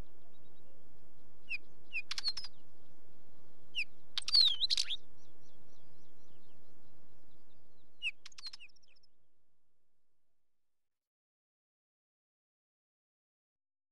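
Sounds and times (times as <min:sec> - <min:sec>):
bird singing: 0:00.0 - 0:09.2.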